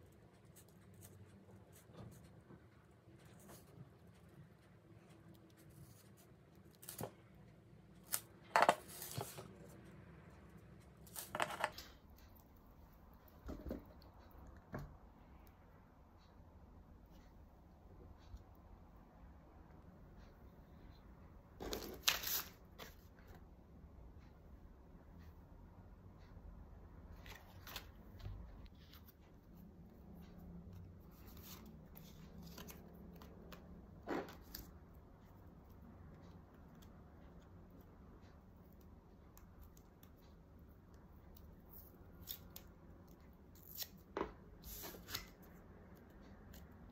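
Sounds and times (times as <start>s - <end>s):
paper cards rustling and shuffling: 5.7s - 7.3s, 8.0s - 9.8s, 11.1s - 12.0s, 21.6s - 23.2s, 27.2s - 29.2s, 31.1s - 34.7s.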